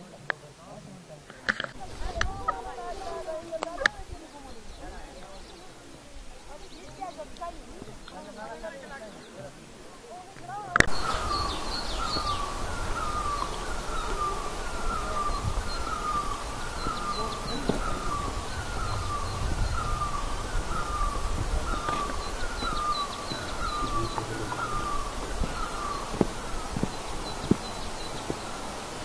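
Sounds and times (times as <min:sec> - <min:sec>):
bird calling short note: 0:10.9 - 0:26.6
low rumble: 0:15.3 - 0:27.3.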